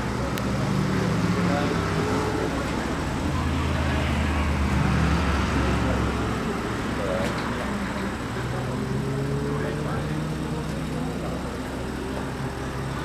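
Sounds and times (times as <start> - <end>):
sports car engine driving away: 0.0 - 13.0.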